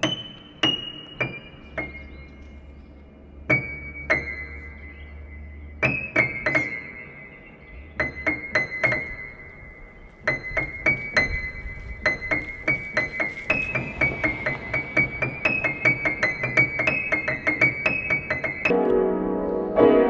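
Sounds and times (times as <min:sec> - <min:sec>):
low drone: 0:01.5 - 0:08.5.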